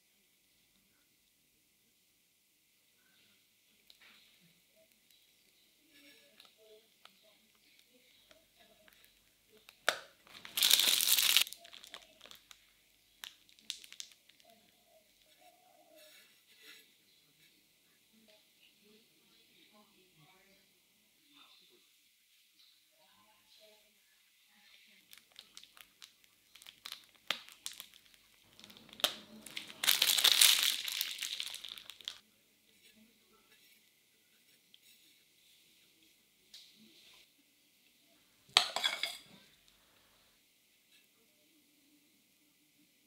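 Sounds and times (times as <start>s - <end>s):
plastic piping bag crinkling: 6.0s - 14.7s, 24.9s - 32.2s.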